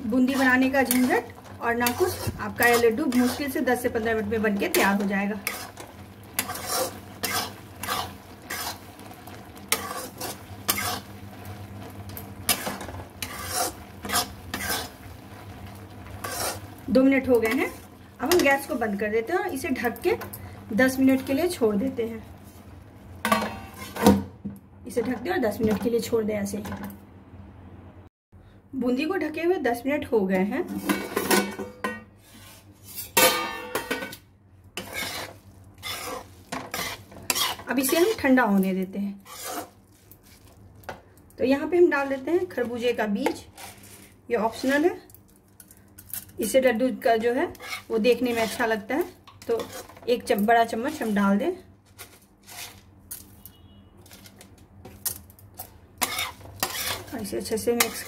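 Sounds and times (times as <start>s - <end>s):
spatula scraping pan: 0.0s - 21.6s, 23.3s - 24.1s, 30.7s - 34.2s, 34.8s - 38.4s, 39.2s - 41.0s, 41.9s - 45.0s, 46.4s - 52.9s, 54.0s - 58.0s
syrup sizzling: 0.0s - 23.4s
metal lid clattering: 33.1s - 34.2s.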